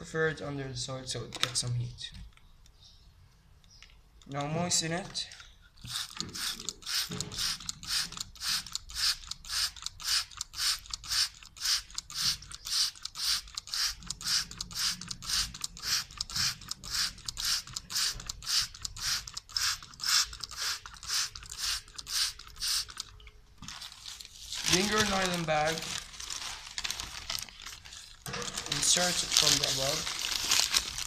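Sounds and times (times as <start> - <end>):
spray bottle squirting: 5.8 - 23.1.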